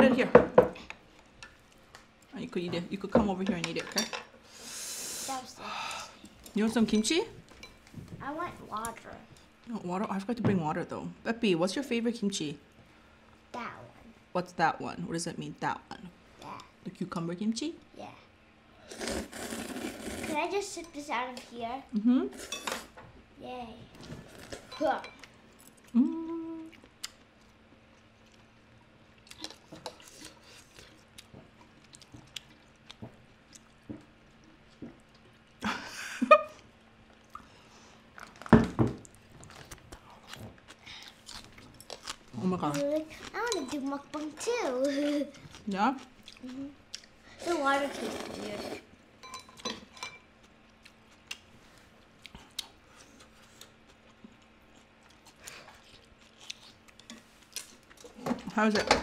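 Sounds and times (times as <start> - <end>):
chewing and mouth noises: 24.3 - 35.6, 39.0 - 48.8, 50.4 - 58.2.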